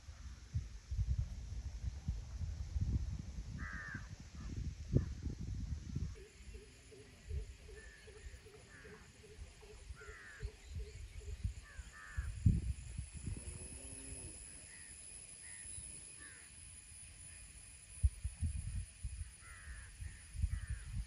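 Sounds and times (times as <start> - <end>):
crows cawing: 3.6 - 4.1, 8.6 - 9.1, 10.0 - 10.4, 11.7 - 12.3, 16.2 - 16.5, 19.4 - 19.9
high-pitched whine: 5.0 - 21.0.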